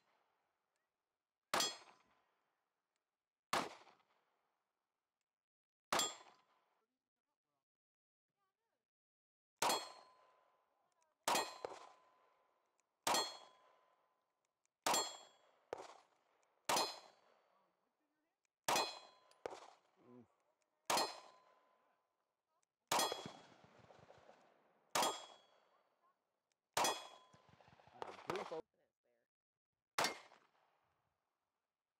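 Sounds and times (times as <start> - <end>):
pistol shots: 3.5 - 4.0, 11.3 - 12.0, 13.1 - 13.5, 14.9 - 17.3, 18.7 - 20.0, 20.9 - 21.4, 22.9 - 25.7, 26.8 - 28.6, 30.0 - 30.6.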